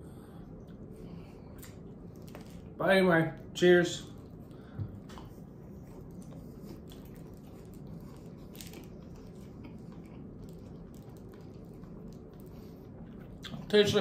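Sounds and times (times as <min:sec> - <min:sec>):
person chewing sandwich: 0:00.5 - 0:02.8, 0:04.1 - 0:13.7.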